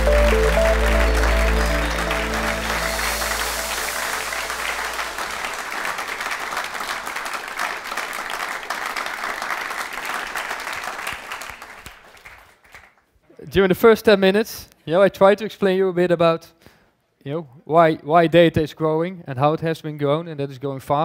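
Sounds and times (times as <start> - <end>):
electronic music with bass line: 0.0 - 5.7
audience clapping: 0.0 - 13.1.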